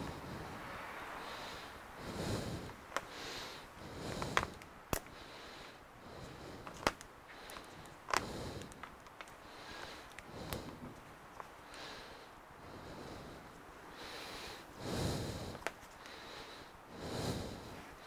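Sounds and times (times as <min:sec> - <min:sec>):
plastic pegs clicking: 0:06.6 - 0:09.4, 0:10.0 - 0:10.7.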